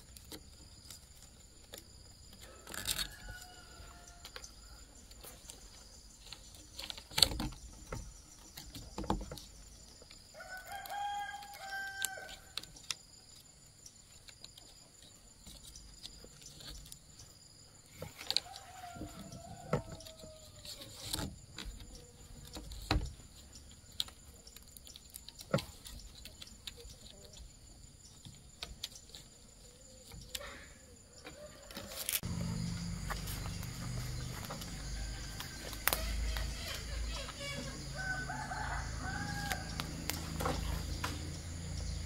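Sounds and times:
high insect buzz: 27.5s - 42.0s
low hum: 32.2s - 36.2s.

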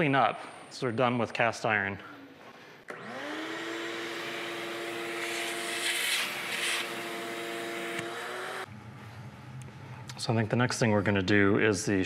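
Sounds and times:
handheld vacuum motor whining: 2.9s - 8.7s.

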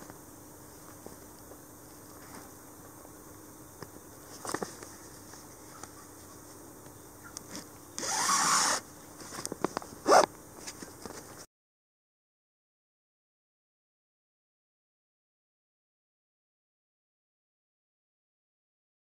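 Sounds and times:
rustling and scraping of hide: 4.2s - 6.6s
cord drawn through hide: 7.5s - 8.8s.

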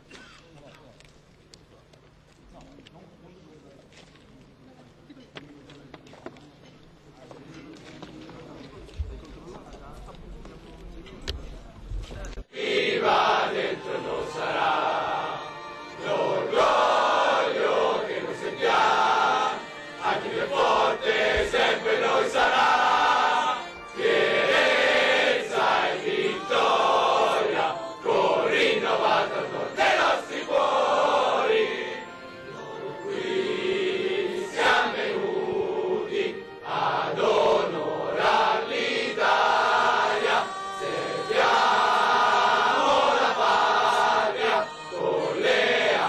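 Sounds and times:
group singing in unison: 12.5s - 46.0s.

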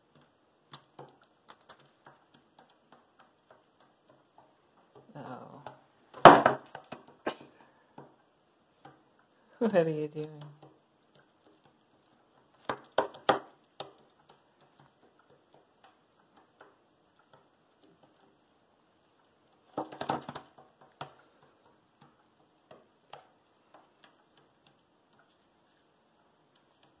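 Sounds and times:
pigeon pecking on wood: 0.0s - 9.3s, 10.2s - 27.0s.

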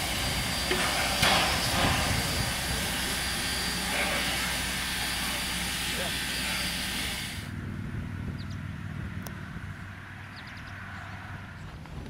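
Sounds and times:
rush of steam: 0.0s - 7.5s
steam locomotives hissing: 0.0s - 7.5s.

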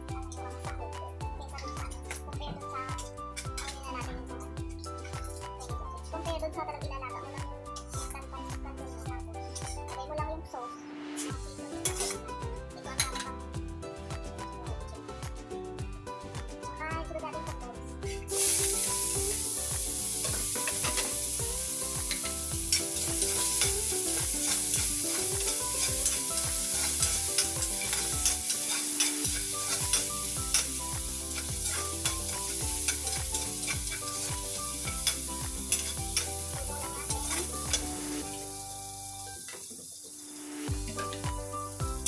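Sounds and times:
food sizzling in hot oil: 11.1s - 12.3s, 18.2s - 42.0s
metal ladle scraping wok: 18.3s - 38.3s.

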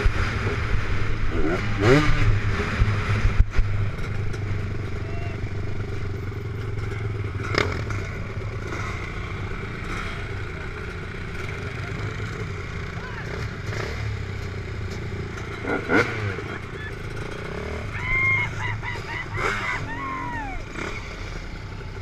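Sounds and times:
dirt bike engine droning: 0.0s - 22.0s.

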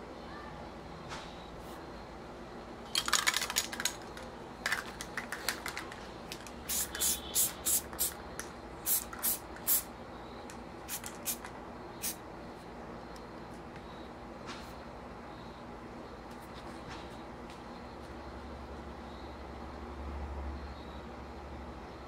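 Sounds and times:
spray can ball rattling: 2.9s - 9.9s, 10.9s - 12.2s
short sharp spray bursts: 6.6s - 8.2s, 8.8s - 9.9s, 10.9s - 12.2s.

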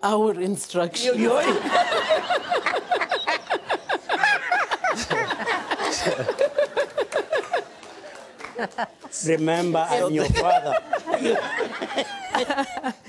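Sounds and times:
elderly man laughing hard: 1.3s - 7.7s, 10.1s - 13.0s.

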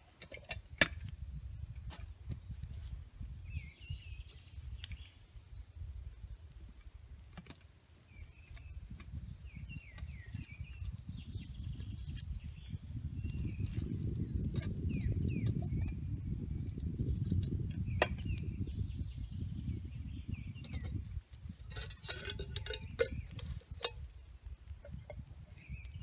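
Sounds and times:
small bird chirping: 2.4s - 7.3s, 8.0s - 26.0s.

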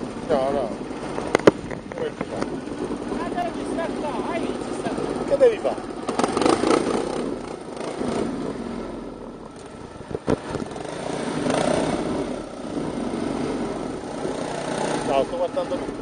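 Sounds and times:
quad bike engines running: 0.0s - 16.0s.

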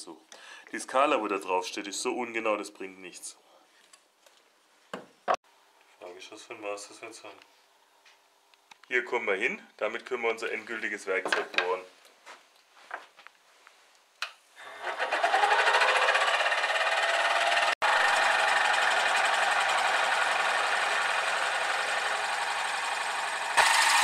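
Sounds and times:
circle cutter cutting wood: 14.6s - 24.0s
drill press running: 14.6s - 24.0s.

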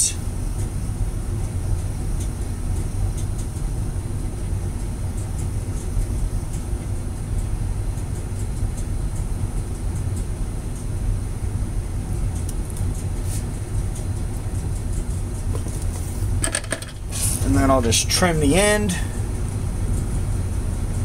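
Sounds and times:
faint light ticks: 2.2s - 3.6s, 5.2s - 6.7s, 12.3s - 13.1s.

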